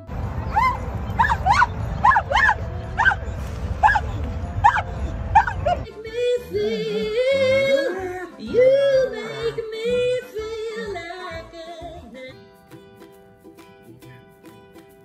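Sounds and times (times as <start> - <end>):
plucked string music: 0.0 - 15.0
dog howling: 0.4 - 5.8.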